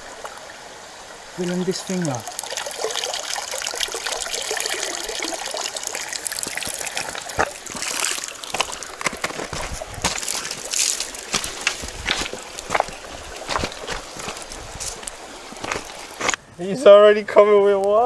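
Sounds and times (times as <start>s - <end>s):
water trickling and dripping: 0.0s - 16.4s
sharp taps and splashes: 2.0s - 16.4s.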